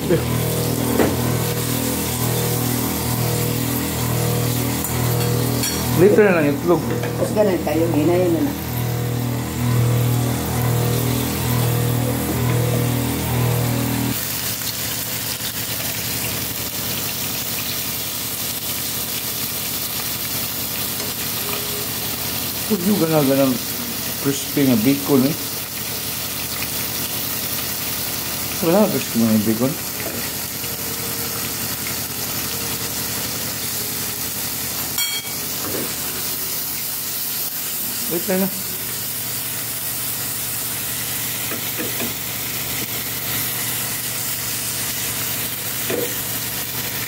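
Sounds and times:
low pitched melody: 0.0s - 14.2s
bacon sizzling in a pan: 0.0s - 47.0s.

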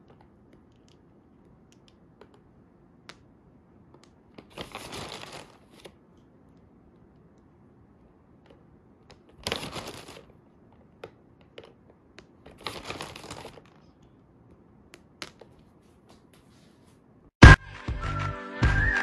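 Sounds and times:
candies clicking and tapping: 0.0s - 4.6s
packaging crinkling: 4.4s - 6.0s, 9.1s - 10.4s, 12.5s - 13.9s.

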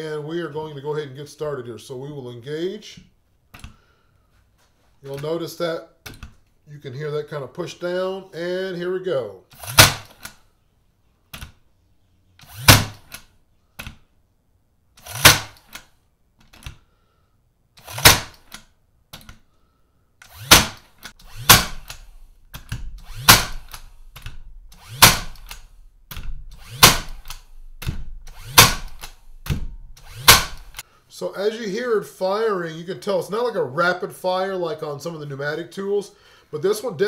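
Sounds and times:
nailer shots into wood: 9.6s - 10.4s, 12.4s - 14.0s, 15.0s - 15.9s, 17.8s - 18.6s, 20.3s - 30.8s.

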